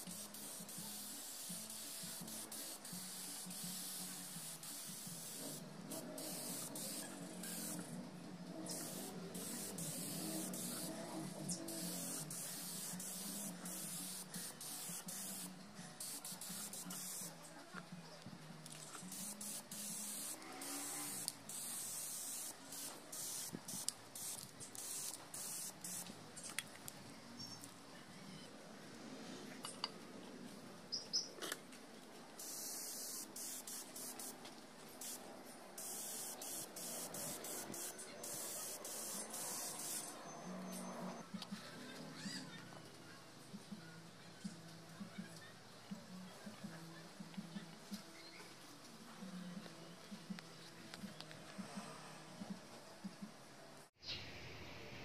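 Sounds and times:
spray gun hissing: 0.0s - 7.9s, 8.6s - 17.3s, 19.0s - 26.1s, 32.4s - 34.4s, 35.0s - 35.2s, 35.8s - 40.2s.

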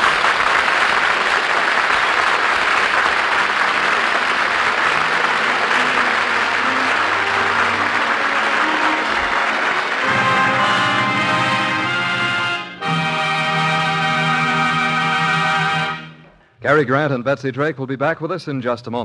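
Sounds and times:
audience applauding: 0.0s - 16.2s
faint orchestral music: 3.3s - 17.6s.

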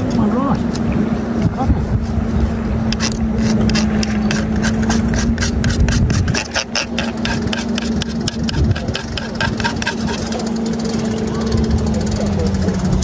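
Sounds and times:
low hum: 0.0s - 13.0s
spinning reel clicking: 2.9s - 13.0s.

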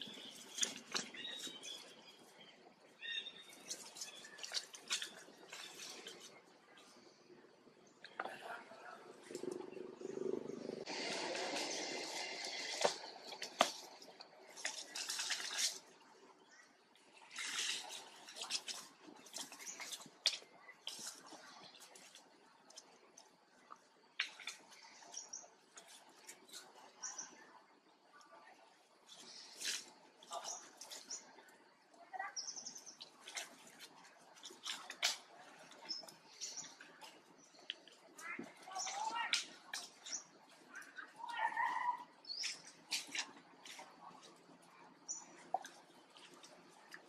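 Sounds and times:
birds chirping: 0.0s - 15.0s, 23.6s - 47.0s
leaves and grass rustling: 10.8s - 16.0s, 17.1s - 23.0s, 32.2s - 47.0s.

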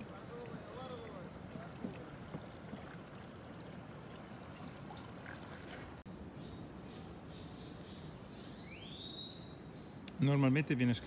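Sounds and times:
water lapping against hull: 0.0s - 6.1s.

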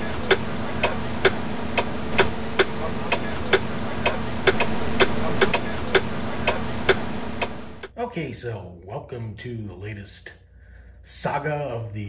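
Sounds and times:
turn signal flasher clicking: 0.0s - 8.0s
steady low hum: 0.0s - 12.0s.

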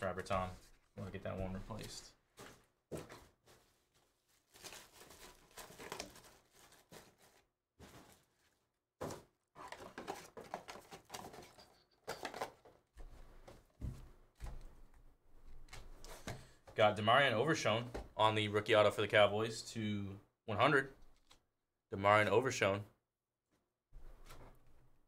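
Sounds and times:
cards and wrapper rustling: 3.5s - 8.6s, 9.6s - 12.8s.

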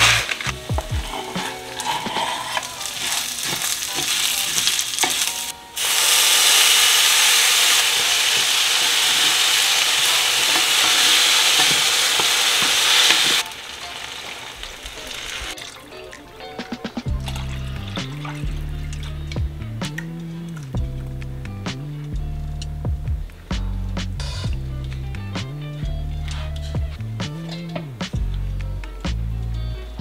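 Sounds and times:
wooden spoon scraping a pot: 0.0s - 5.5s
loud steady sizzle: 0.0s - 16.1s
pasta and onion frying in oil: 0.0s - 16.5s.

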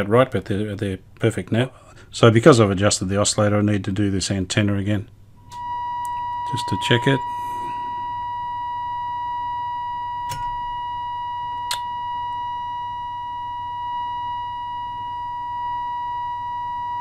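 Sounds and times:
low hum: 5.1s - 17.0s
steady test tone from radio: 5.4s - 17.0s.

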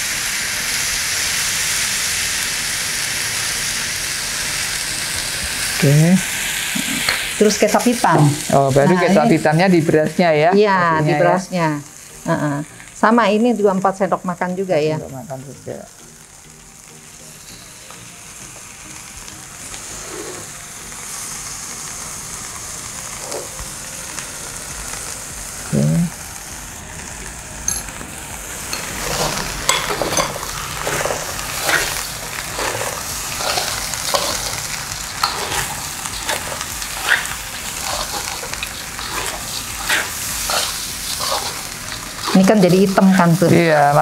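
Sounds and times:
rice sizzling in a pan: 0.0s - 44.0s
spoon scraping and knocking pan: 28.7s - 34.5s.

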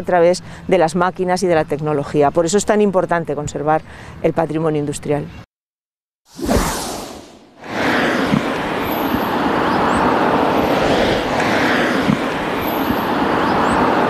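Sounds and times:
whoosh: 6.3s - 14.0s
road traffic noise: 7.6s - 14.0s.

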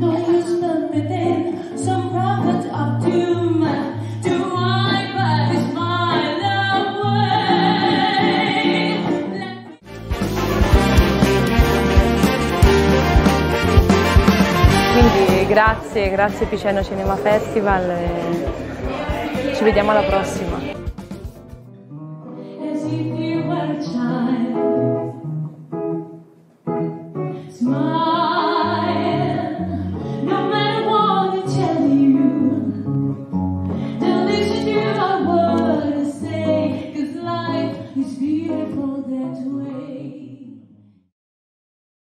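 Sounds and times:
woman singing: 0.0s - 9.8s, 14.8s - 20.8s, 22.5s - 25.1s, 27.2s - 32.9s, 33.9s - 40.7s
guitar accompaniment: 0.0s - 40.3s.

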